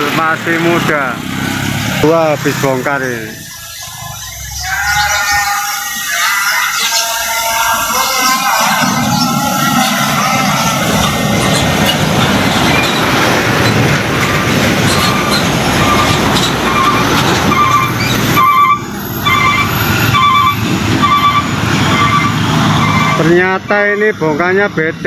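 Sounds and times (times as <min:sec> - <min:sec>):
diesel trucks driving past: 0:00.0 - 0:25.0
road noise: 0:00.0 - 0:25.0
electronic beeping: 0:02.8 - 0:13.8, 0:14.9 - 0:23.3.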